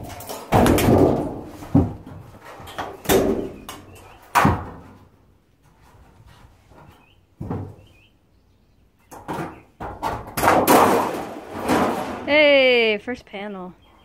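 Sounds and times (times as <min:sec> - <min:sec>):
sheet metal banging and clattering: 0:00.0 - 0:05.0, 0:09.1 - 0:12.6.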